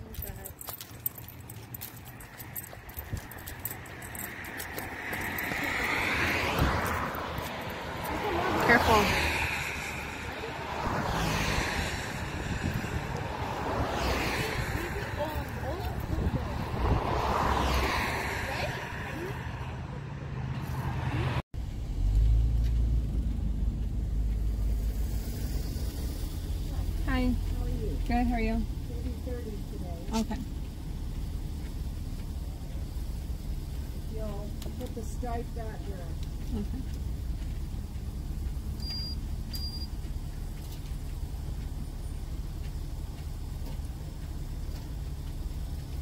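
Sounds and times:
car driving rumble from inside: 0:00.0 - 0:46.0
outdoor noise: 0:00.0 - 0:46.0
short high electronic beeps: 0:38.8 - 0:39.9.

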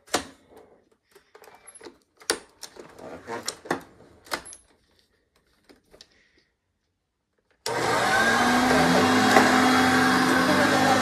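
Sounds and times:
vacuum cleaner running: 0:07.7 - 0:11.0.

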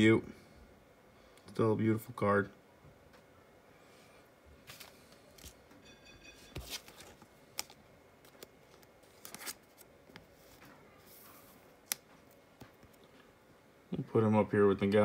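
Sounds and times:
trading cards rustling: 0:04.6 - 0:05.7, 0:06.4 - 0:13.2.

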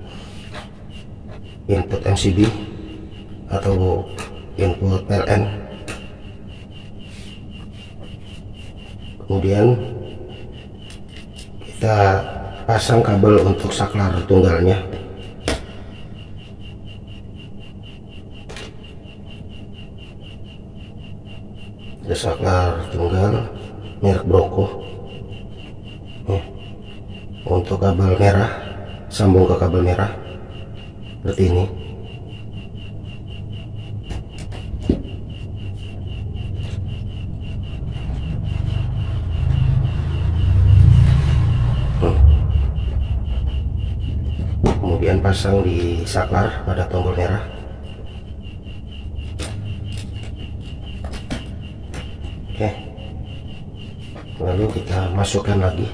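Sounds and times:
low hum: 0:00.0 - 0:55.9
rapid ticking: 0:00.0 - 0:55.9
low rumble: 0:37.0 - 0:46.2.

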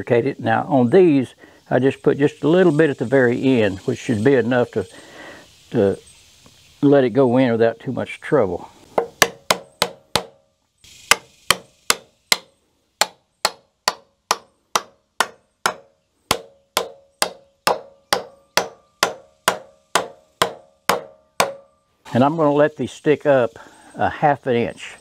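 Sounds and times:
hammer driving wooden pegs: 0:08.9 - 0:10.4, 0:11.1 - 0:21.8.

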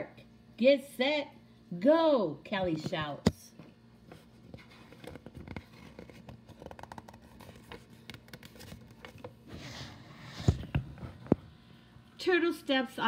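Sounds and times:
paper rustling: 0:04.2 - 0:10.7.

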